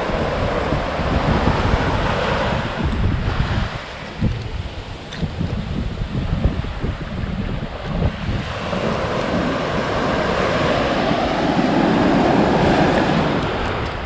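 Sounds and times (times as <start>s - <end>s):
ocean waves breaking: 0.0s - 14.0s
wind buffeting microphone: 0.0s - 14.0s.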